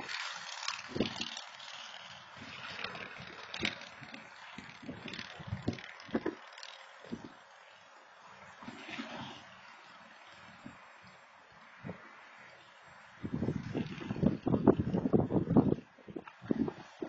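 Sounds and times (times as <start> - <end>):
wind buffeting microphone: 0.0 - 1.4, 2.3 - 6.5, 13.1 - 17.0
road traffic hiss: 0.0 - 14.0.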